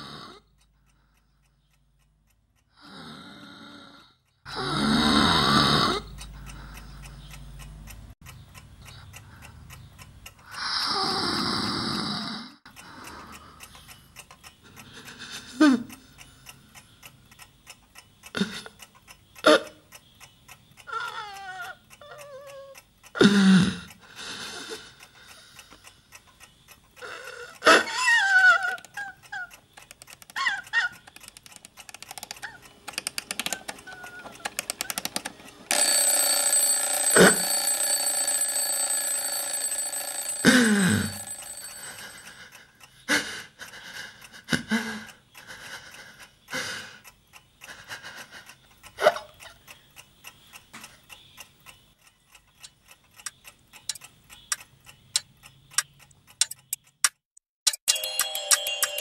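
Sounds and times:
alarm clock ticking: 0.4s - 11.3s, 12.6s - 57.0s, 57.7s - 59.0s
person crying and sobbing: 14.9s - 16.0s, 27.0s - 29.6s, 40.4s - 47.0s
alarm clock bell ringing: 35.7s - 42.8s, 57.9s - 59.0s.

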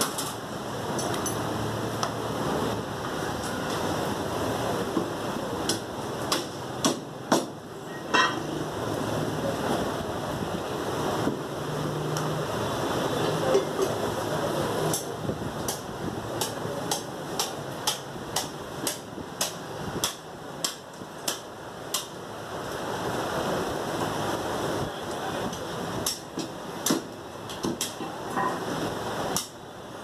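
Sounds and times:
cleaver chopping on wooden block: 5.7s - 7.6s, 16.4s - 22.1s, 26.0s - 28.0s.

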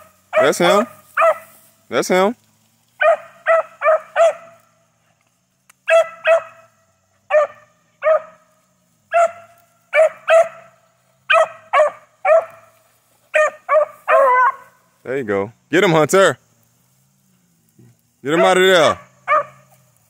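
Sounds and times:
puppy barking: 0.3s - 1.5s, 3.0s - 4.6s, 5.9s - 6.7s, 7.3s - 8.4s, 9.1s - 12.7s, 13.3s - 14.8s, 18.4s - 19.7s.

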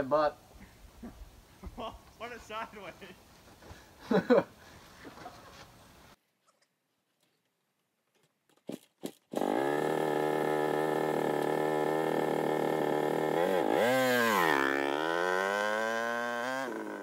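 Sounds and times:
dirt bike engine running and revving: 9.4s - 17.0s.

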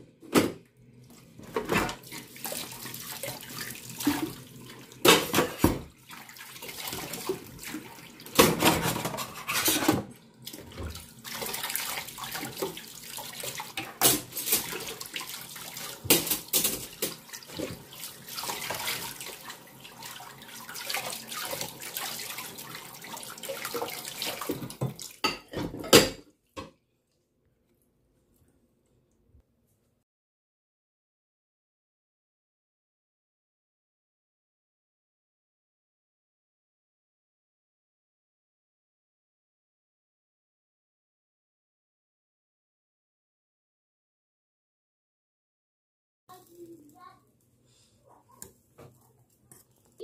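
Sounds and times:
tap water running into sink: 1.0s - 25.8s
dishes clattering: 5.0s - 5.9s, 8.4s - 10.1s, 13.7s - 14.9s, 16.0s - 17.8s, 24.7s - 26.8s.

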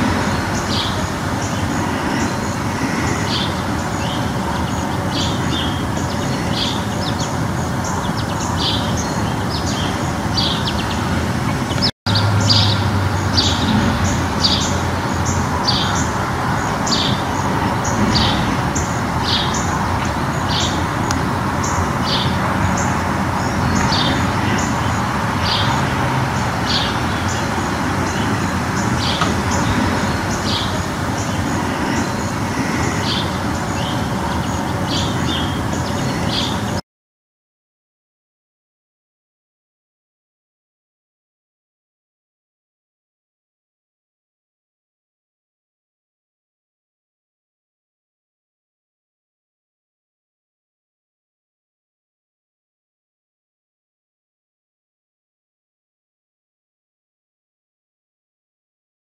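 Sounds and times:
songbirds singing: 0.0s - 36.8s
steady rushing noise: 0.0s - 36.8s.

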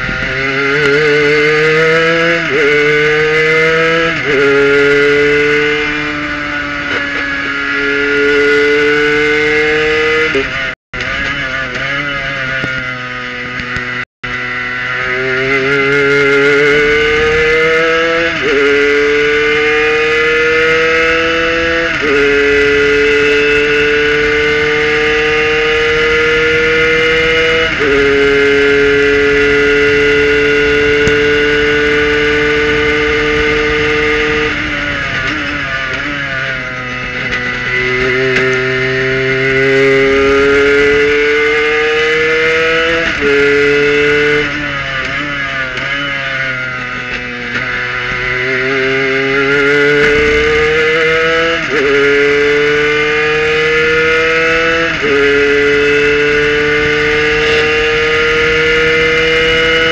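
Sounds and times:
race car engine at full throttle: 0.0s - 59.9s.

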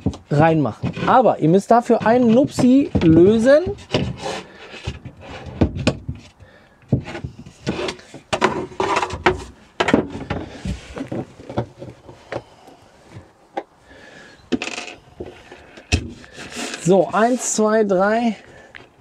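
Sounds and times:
wooden board knocking and scraping: 0.0s - 12.5s, 14.5s - 16.9s.

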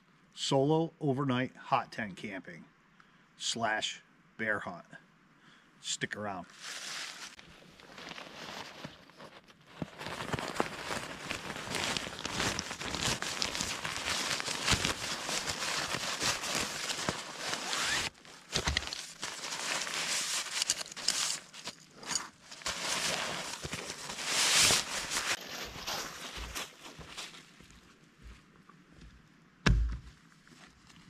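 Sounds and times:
nylon fabric rustling: 6.5s - 27.4s.

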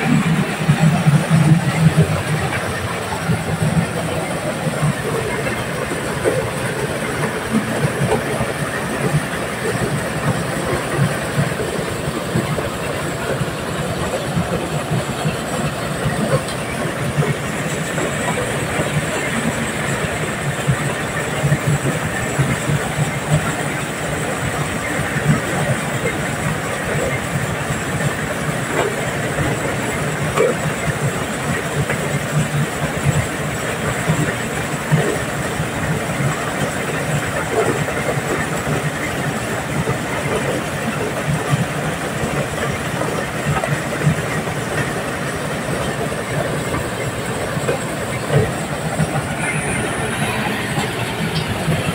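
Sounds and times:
diesel engine drone: 0.0s - 51.9s.

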